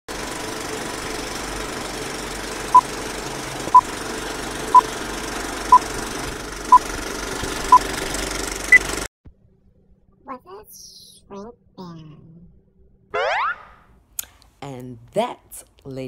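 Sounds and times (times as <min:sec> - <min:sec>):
film projector rattle and hiss: 0:00.1 - 0:09.1.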